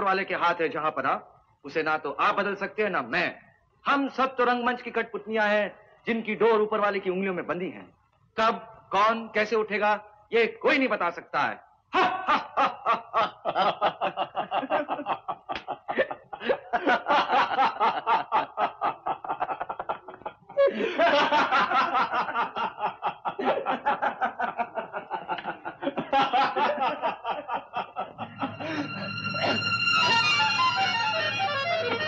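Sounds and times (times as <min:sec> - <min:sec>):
men laughing: 0:11.9 - 0:30.6
plucked string music: 0:28.2 - 0:32.0.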